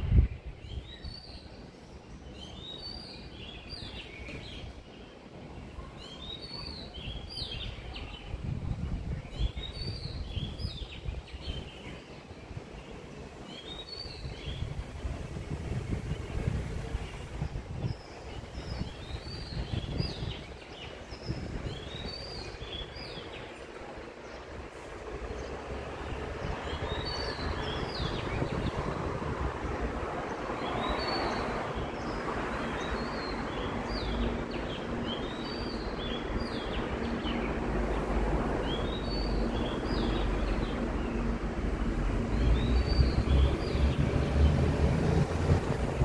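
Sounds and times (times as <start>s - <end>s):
road traffic: 0.0s - 46.0s
small birds chirping: 0.2s - 46.0s
vehicle passing: 37.5s - 46.0s.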